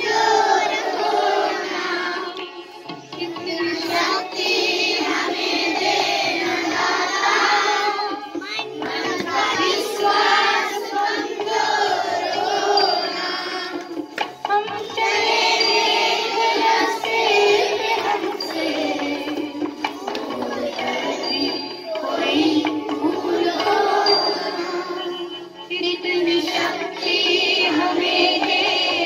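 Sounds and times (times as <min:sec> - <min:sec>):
children singing a prayer song: 0:00.0 - 0:29.0.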